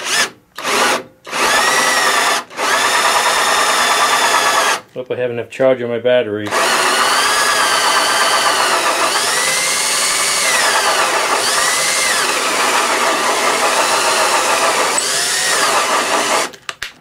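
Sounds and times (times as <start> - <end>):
cordless drill cutting wood: 0.0 - 4.8, 6.5 - 16.6.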